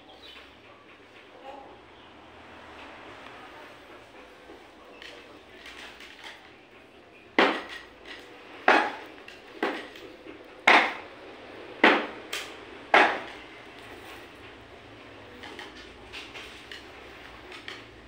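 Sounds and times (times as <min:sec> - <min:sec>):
wooden chair legs knocking on tiles: 0:07.4 - 0:10.0, 0:10.7 - 0:11.0, 0:11.8 - 0:12.2, 0:12.9 - 0:13.4.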